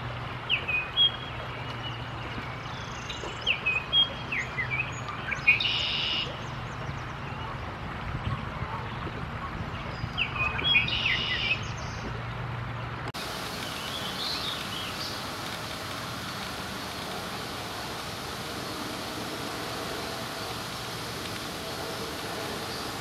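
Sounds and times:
bird whistled song: 13.4s - 23.0s.

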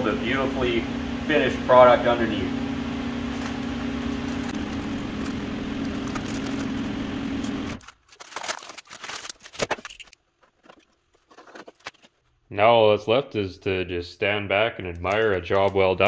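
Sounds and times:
steady machine hum: 0.0s - 8.0s
tape peeling off metal: 3.3s - 12.2s.

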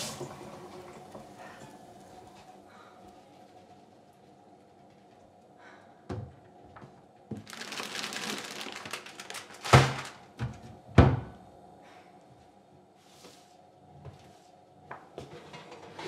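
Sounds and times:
plastic packets crinkling: 7.3s - 10.4s
packets thumping down: 7.4s - 10.4s.

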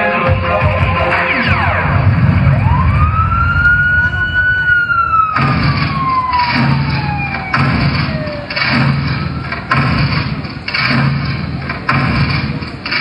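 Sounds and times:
loud rhythmic beats: 0.0s - 13.0s
siren winding down: 1.0s - 9.5s.

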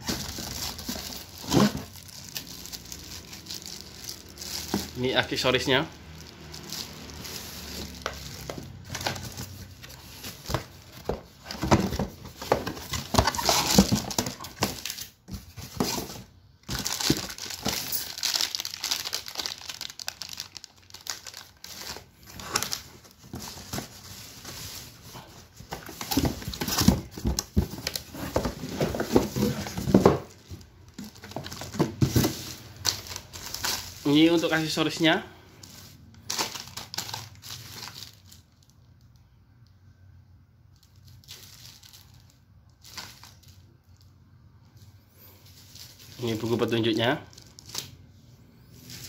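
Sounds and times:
plastic bags crinkling: 0.0s - 38.8s, 40.7s - 44.2s, 45.4s - 48.1s.

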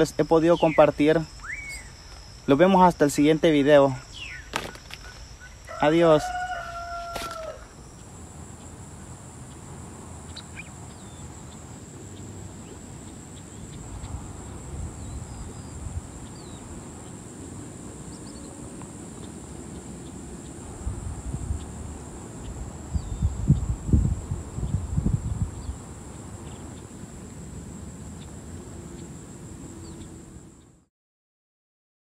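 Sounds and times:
faint bird chirps: 0.0s - 8.1s
insects droning: 0.0s - 30.9s
wind rumble on microphone: 8.2s - 30.6s.

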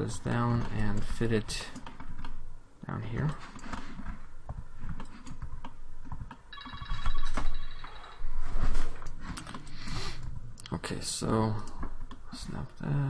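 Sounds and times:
trilling electronic ring: 6.5s - 8.2s.

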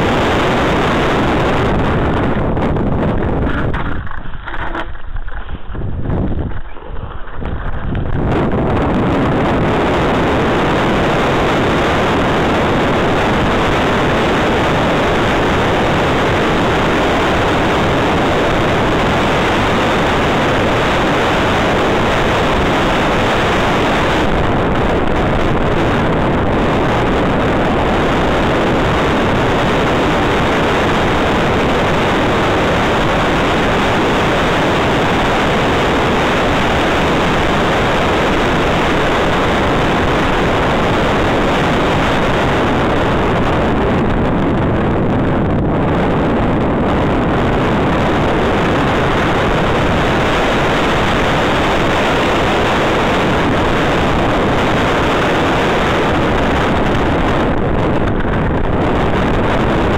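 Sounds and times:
bike tyres rolling on gravel: 0.0s - 12.2s
wind rushing on microphone: 0.0s - 59.9s.

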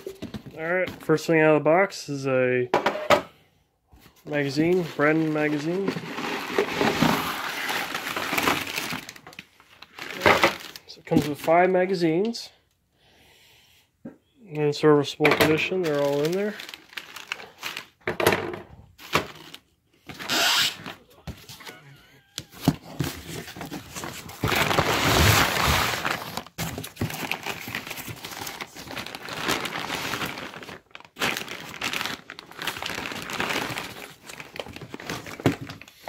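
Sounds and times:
packing paper crumpling: 4.2s - 11.6s, 15.6s - 18.0s, 22.2s - 36.0s
packing peanuts shifting: 4.2s - 11.6s, 15.6s - 18.0s, 22.2s - 36.0s.

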